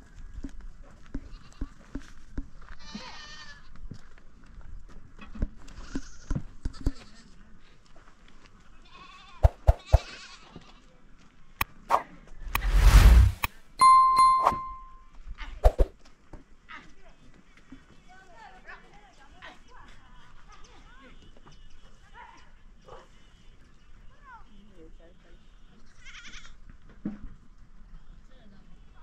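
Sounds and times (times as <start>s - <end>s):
loud whoosh: 11.9s - 13.5s
goats bleating: 25.9s - 26.6s.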